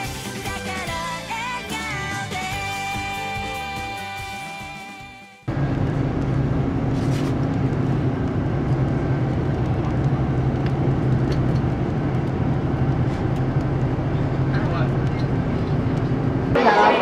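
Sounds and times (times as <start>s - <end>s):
vehicle engine and tyres drone: 5.5s - 17.0s.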